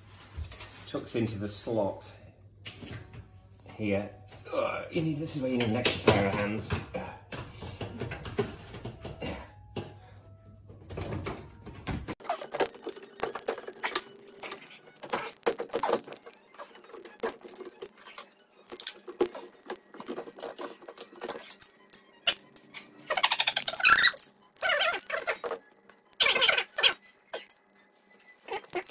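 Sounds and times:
washing machine panels clattering: 5.5s - 10.0s, 10.8s - 12.2s.

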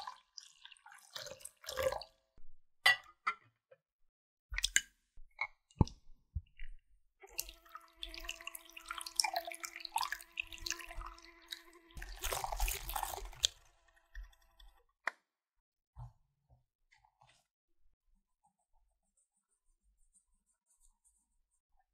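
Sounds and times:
whisk scraping bowl: 12.0s - 14.7s.

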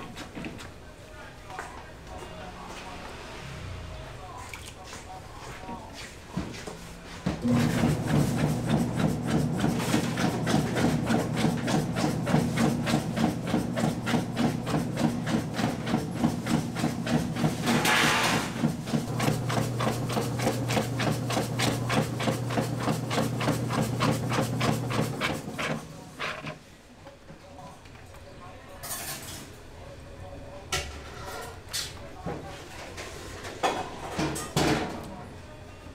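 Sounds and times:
machine humming and knocking: 7.4s - 17.9s, 18.5s - 25.9s.

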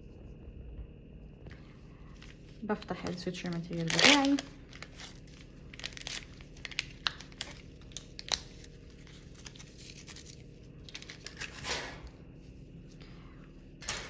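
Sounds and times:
soft wrapper rustle: 1.5s - 11.6s
wrapper crinkling: 2.2s - 11.7s.

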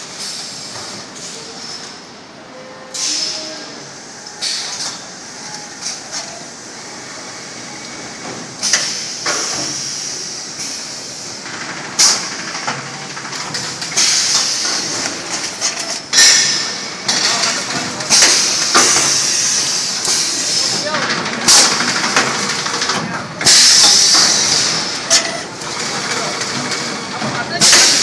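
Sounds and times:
hiss: 0.1s - 1.5s, 3.0s - 3.5s, 4.4s - 4.9s, 8.6s - 11.4s, 14.0s - 15.0s, 18.2s - 20.8s.

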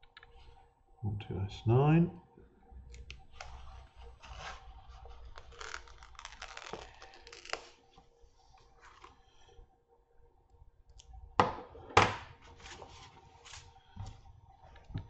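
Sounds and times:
paper sticker sheet rustling: 3.4s - 7.8s.

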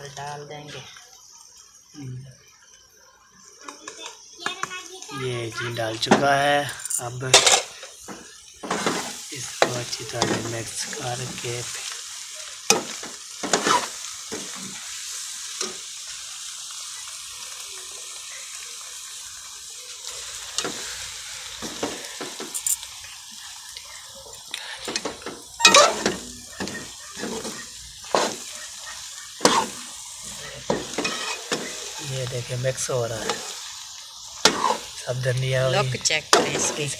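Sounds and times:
food sizzling in pan: 0.0s - 36.9s
spoon scraping metal pan: 7.3s - 8.0s, 24.9s - 28.5s, 29.4s - 29.8s, 30.4s - 31.9s, 34.4s - 34.9s.

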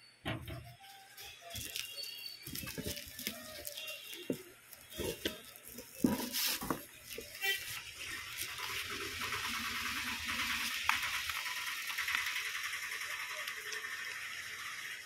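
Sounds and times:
paper slips rustling: 0.6s - 11.9s.

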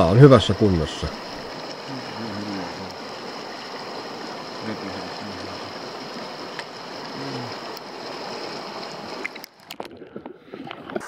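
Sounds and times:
river rapid rushing water: 0.0s - 9.5s.

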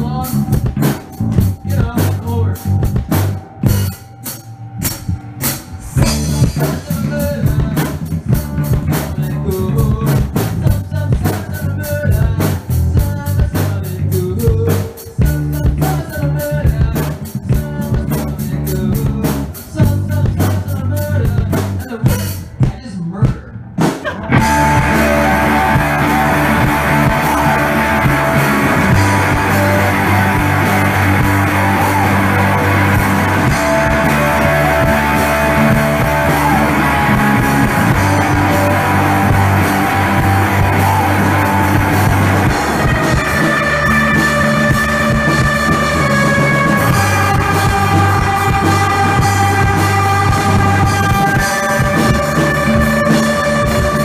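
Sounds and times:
drum kit hits: 0.0s - 9.1s, 23.8s - 54.0s
rock band playing: 0.0s - 22.6s, 23.7s - 54.0s
bass guitar: 0.0s - 54.0s.

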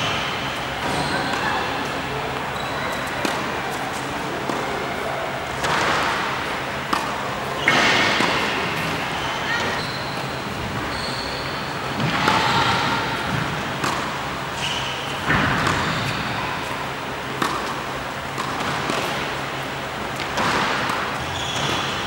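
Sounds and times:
tennis ball bouncing on hard court: 2.6s - 4.6s, 5.6s - 10.0s, 12.0s - 16.7s, 17.4s - 19.4s, 20.2s - 22.0s
tennis ball hit by racket: 3.1s - 4.7s, 5.6s - 9.0s, 12.0s - 14.3s, 15.2s - 16.7s, 17.4s - 19.4s, 20.2s - 22.0s.

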